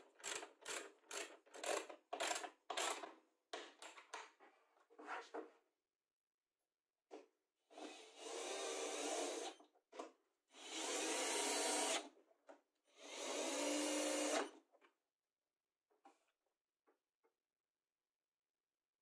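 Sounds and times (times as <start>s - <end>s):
cordless drill driving screws: 7.8s - 9.6s, 10.6s - 12.1s, 13.0s - 14.5s.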